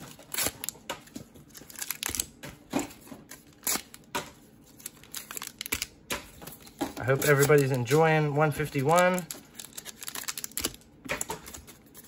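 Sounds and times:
foil packs crinkling: 0.0 - 12.0.

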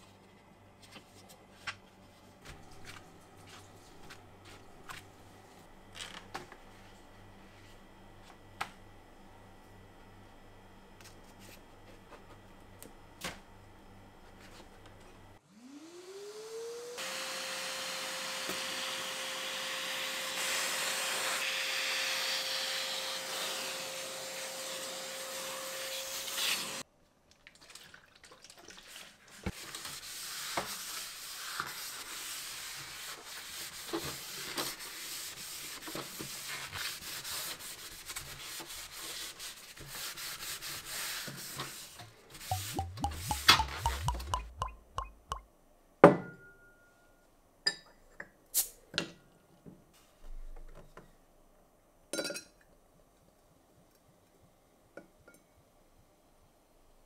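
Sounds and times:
vacuum cleaner humming: 15.4 - 26.8.

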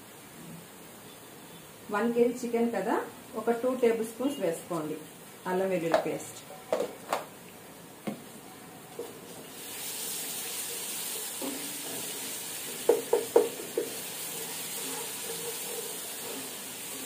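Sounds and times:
paste sizzling in hot oil: 9.4 - 17.0
spatula knocking against pot: 12.9 - 14.0.

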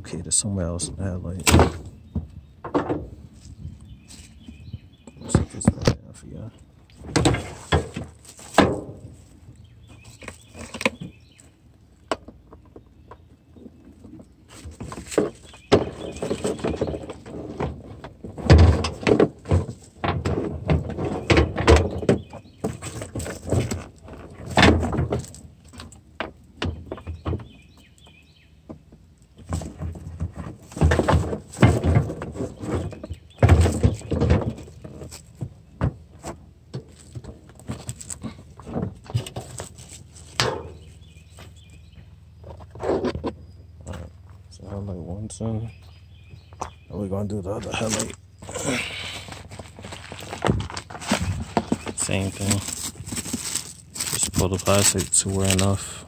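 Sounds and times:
car parts knocking and clattering: 1.3 - 56.0.

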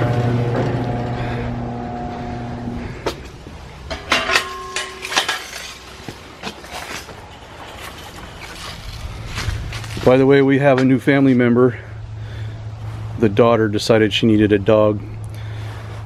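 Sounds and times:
motor hum: 0.0 - 4.0.

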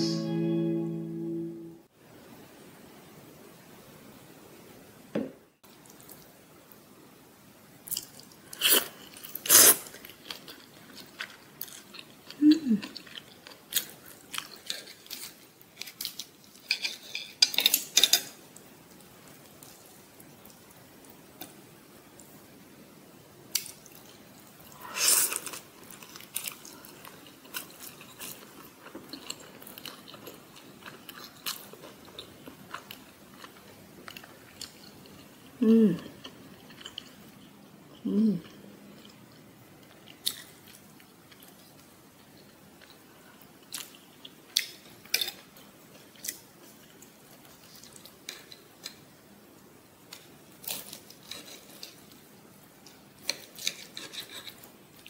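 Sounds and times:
low sounds falling in pitch: 0.0 - 1.8
chewing and crunching: 7.9 - 18.3, 23.5 - 49.1, 50.1 - 55.0.

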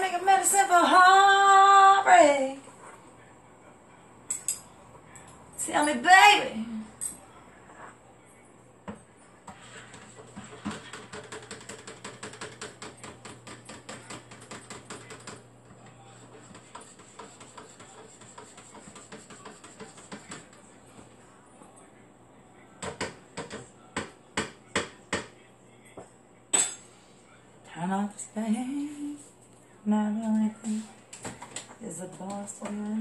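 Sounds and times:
spoon stirring in a cup: 9.4 - 21.2.

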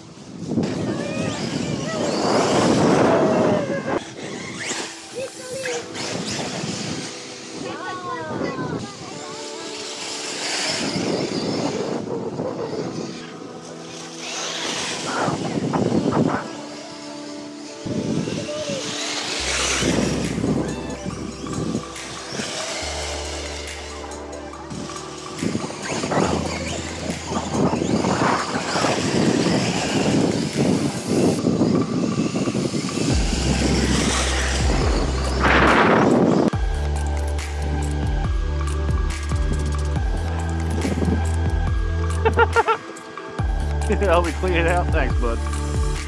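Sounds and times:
toy car tyres rushing through leaves: 0.2 - 3.4, 4.0 - 36.5.

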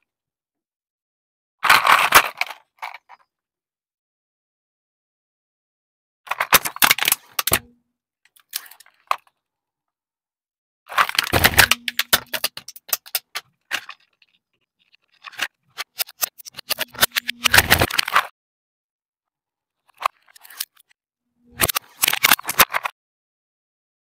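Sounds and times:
plastic toy cracking under tyre: 6.3 - 7.7, 10.9 - 14.2.

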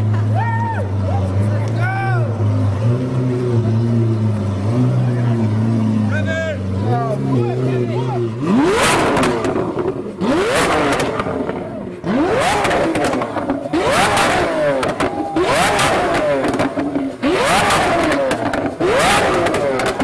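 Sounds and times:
sports car engine revving: 0.0 - 20.0
exhaust cracks and pops: 12.6 - 20.0.

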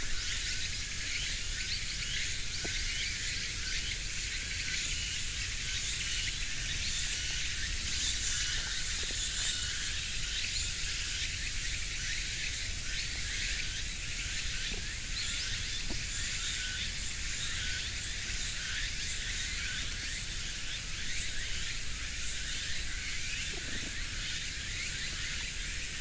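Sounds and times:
insect chorus chirping: 0.0 - 26.0.

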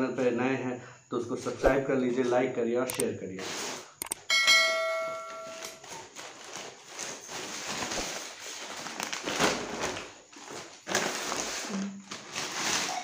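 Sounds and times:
plastic packaging crinkling: 5.5 - 13.0.

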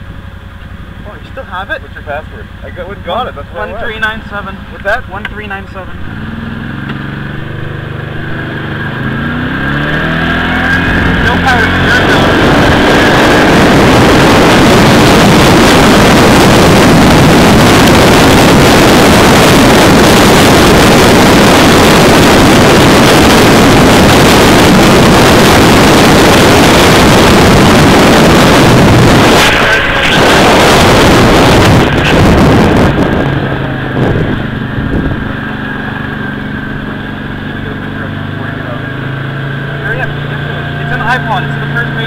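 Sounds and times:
vehicle engine: 0.0 - 42.0
wind buffeting microphone: 9.6 - 36.9.

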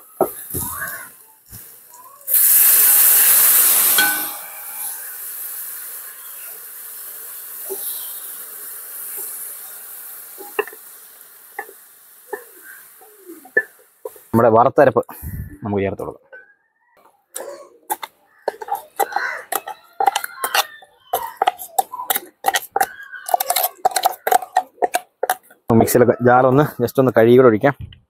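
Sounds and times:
liquid sizzling in hot oil: 0.0 - 14.5, 17.9 - 25.7
wooden spatula stirring: 17.9 - 25.7.

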